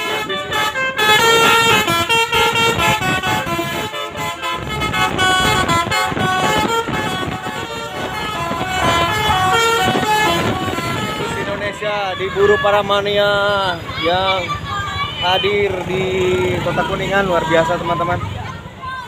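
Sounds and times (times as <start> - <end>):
musical air horn melody: 0.0 - 11.8
road traffic: 0.0 - 19.0.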